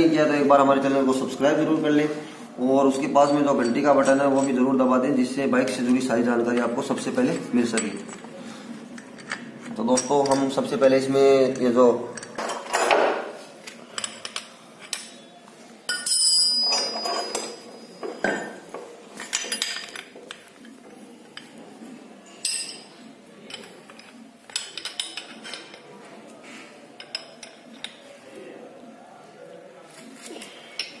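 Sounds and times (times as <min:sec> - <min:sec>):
metallic clinks and scrapes of tools: 0:03.2 - 0:04.8, 0:06.6 - 0:10.7, 0:13.6 - 0:21.6, 0:22.3 - 0:28.2, 0:30.2 - 0:31.0.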